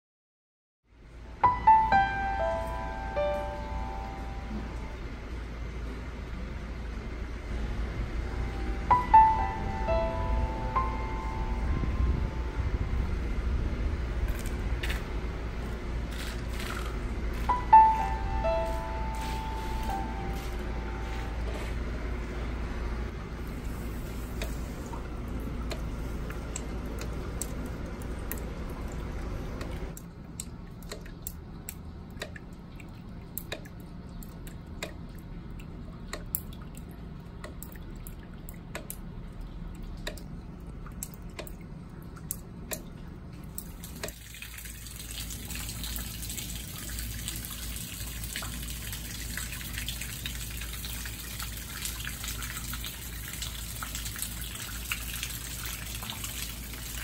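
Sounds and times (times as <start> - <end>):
steady wash of noise: 7.2 - 15.6
water dripping into puddles: 24.4 - 57.0.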